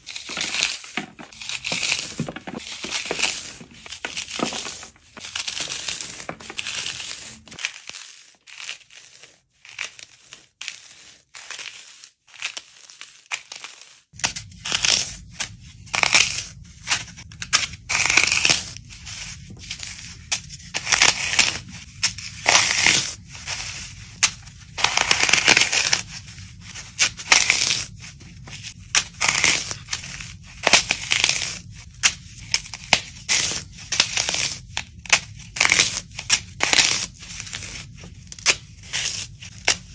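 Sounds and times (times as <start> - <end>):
floral foam crunching in hands: 0.0 - 9.2.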